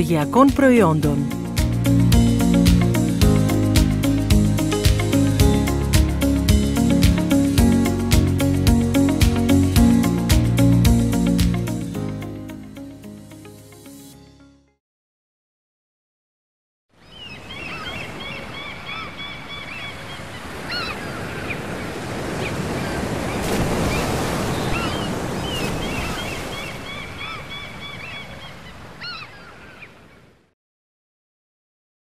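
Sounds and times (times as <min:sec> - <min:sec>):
gulls calling: 0:17.1 - 0:30.0
surf washing on shore: 0:17.4 - 0:29.8.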